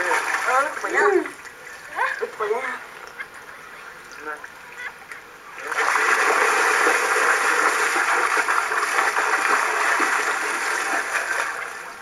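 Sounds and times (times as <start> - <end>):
water splashing and churning: 0.0 - 1.5, 5.5 - 12.0.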